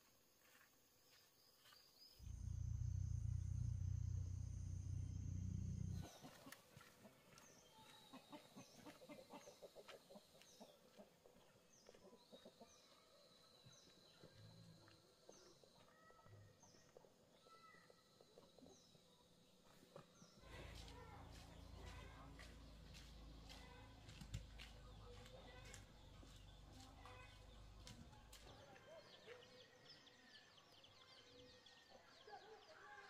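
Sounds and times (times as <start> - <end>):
low rumble: 2.2 - 6.1
birds chirping: 2.2 - 9.7.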